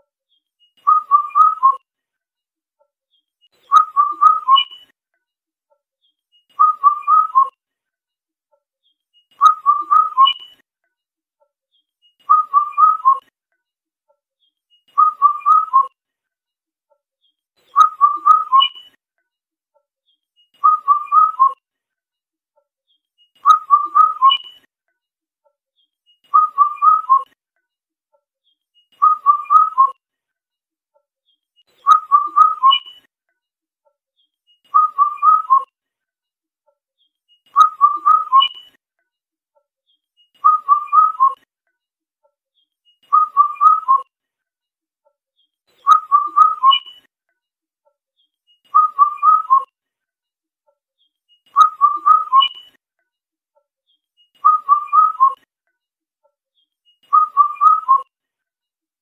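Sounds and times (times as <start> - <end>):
cuckoo whistled call: 0.8 - 1.8, 3.7 - 4.9, 6.6 - 7.5, 9.4 - 10.6, 12.3 - 13.3, 15.0 - 16.0, 17.8 - 19.0, 20.6 - 21.6, 23.4 - 24.7, 26.3 - 27.4, 29.0 - 30.0, 31.8 - 33.1, 34.7 - 35.7, 37.6 - 38.8, 40.4 - 41.4, 43.0 - 44.0, 45.8 - 47.1, 48.7 - 49.7, 51.6 - 52.8, 54.4 - 55.4, 57.0 - 58.0.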